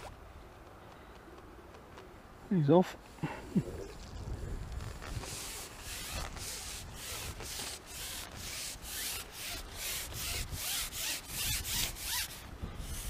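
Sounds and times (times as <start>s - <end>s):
rasping rubbing strokes: 4.8s - 13.0s.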